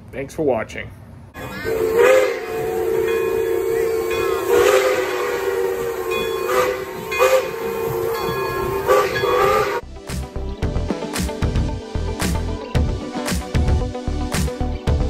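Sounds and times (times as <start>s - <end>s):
sharp puffs of steam: 1.4s - 9.8s
steam hissing: 1.4s - 9.8s
steam locomotive whistle: 1.4s - 9.8s.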